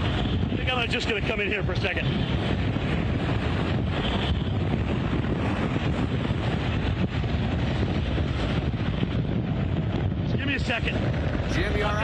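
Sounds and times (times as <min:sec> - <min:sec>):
hurricane wind gusting: 0:00.0 - 0:12.0.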